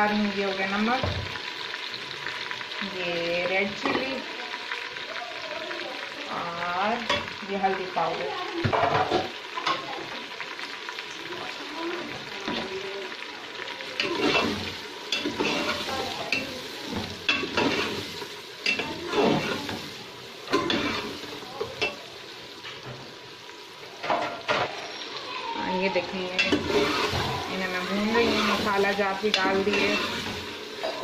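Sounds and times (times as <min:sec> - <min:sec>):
food sizzling in hot oil: 0:00.0 - 0:31.0
metal ladle scraping pot: 0:14.0 - 0:18.1, 0:18.7 - 0:19.8, 0:20.5 - 0:21.2, 0:26.4 - 0:31.0.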